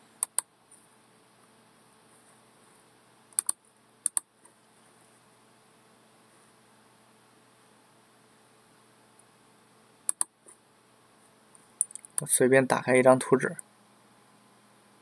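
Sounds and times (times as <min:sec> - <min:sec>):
faint steady hiss: 0:00.0 - 0:15.0
computer mouse clicking: 0:00.2 - 0:00.5, 0:03.4 - 0:04.3, 0:10.1 - 0:10.3, 0:11.8 - 0:12.3.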